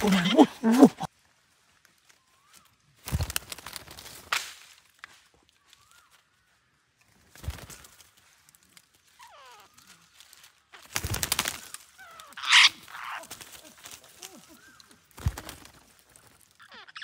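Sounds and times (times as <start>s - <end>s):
wings flapping and twigs rattling: 0.0s - 1.1s, 1.8s - 17.0s
parakeets screeching: 12.0s - 13.4s, 16.6s - 17.0s.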